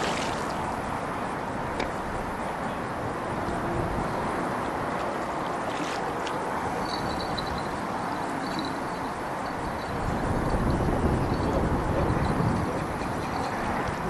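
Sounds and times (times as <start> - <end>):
wind on microphone: 9.6 - 14.0.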